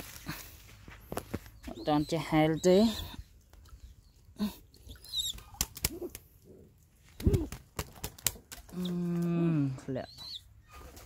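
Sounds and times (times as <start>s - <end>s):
pigeon calls: 4.8s - 6.3s, 7.1s - 7.9s
pigeon flapping wet wings: 5.2s - 6.4s, 7.0s - 9.3s.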